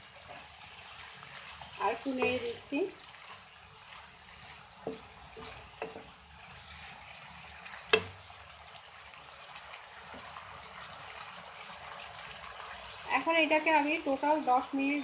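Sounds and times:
chicken sizzling in a pan: 0:00.0 - 0:15.0
spatula knocking and scraping pan: 0:01.5 - 0:03.4, 0:04.4 - 0:06.2, 0:07.8 - 0:08.2.

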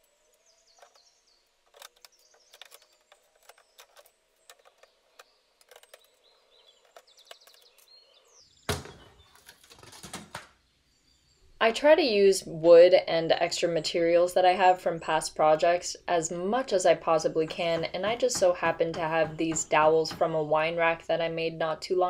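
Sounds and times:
wood scraping and cracking: 0:00.7 - 0:07.9, 0:08.7 - 0:10.6.

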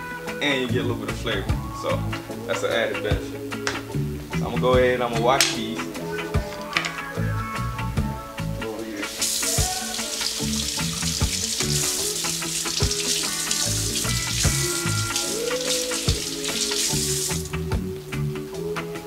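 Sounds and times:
kitchen faucet running: 0:09.0 - 0:17.6
water splashing over vegetables: 0:09.1 - 0:17.6.

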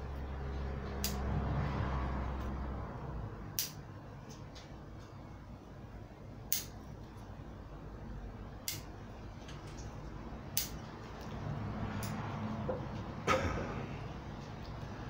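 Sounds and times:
scissors snipping twigs: 0:00.8 - 0:01.3, 0:03.6 - 0:03.8, 0:06.5 - 0:06.7, 0:10.5 - 0:10.8.

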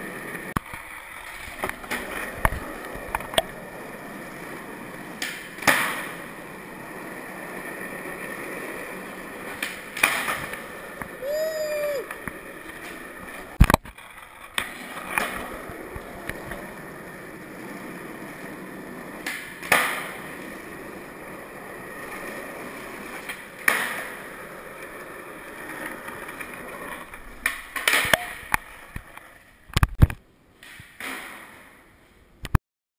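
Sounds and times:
skateboard wheels rolling on concrete: 0:00.0 - 0:32.6
skateboard wooden clacks: 0:00.5 - 0:03.6, 0:05.1 - 0:06.3, 0:08.2 - 0:11.2, 0:12.0 - 0:16.8, 0:19.2 - 0:20.4, 0:23.1 - 0:24.3, 0:25.8 - 0:31.8.

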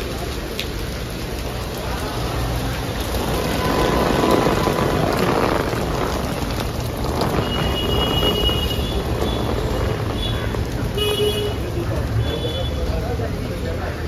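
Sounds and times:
rain on a wet street: 0:00.0 - 0:14.0
traffic rumble: 0:00.0 - 0:14.0
wind on microphone: 0:03.0 - 0:10.8.

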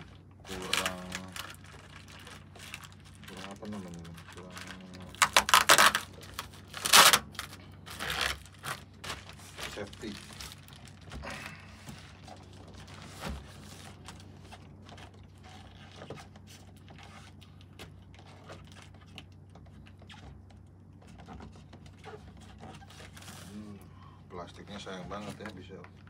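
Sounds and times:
plastic wrap crinkling: 0:00.0 - 0:20.4.

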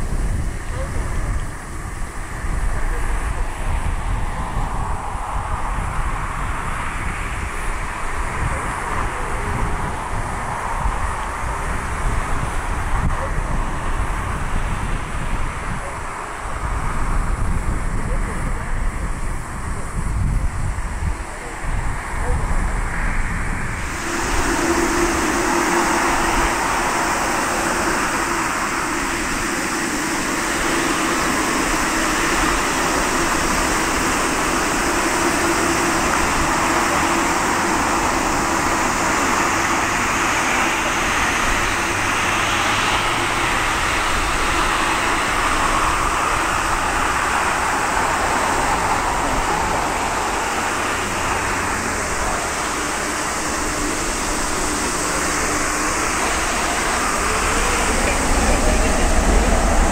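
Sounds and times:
jet engines rushing: 0:00.0 - 0:59.9
low hum: 0:00.0 - 0:59.9.

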